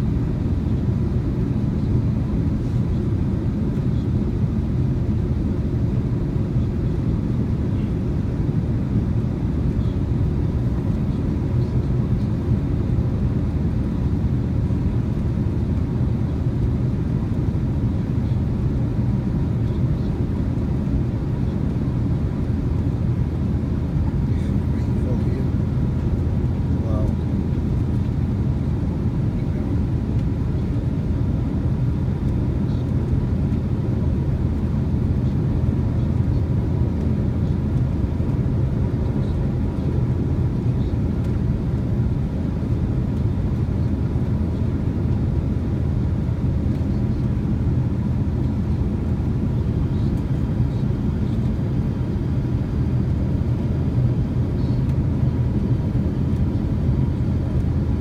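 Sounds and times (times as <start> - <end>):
airliner cabin engine rumble: 0.0 - 58.0
faint steady hum: 34.6 - 58.0.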